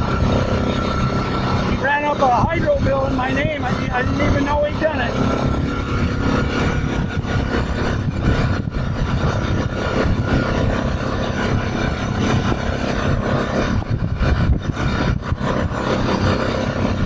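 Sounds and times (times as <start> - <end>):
atv engine running: 0.0 - 17.0
rushing ride noise: 0.0 - 17.0.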